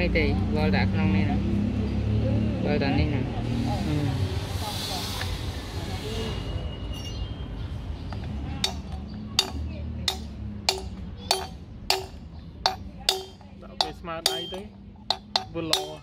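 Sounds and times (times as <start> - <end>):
hammer striking steel rod: 8.6 - 16.0.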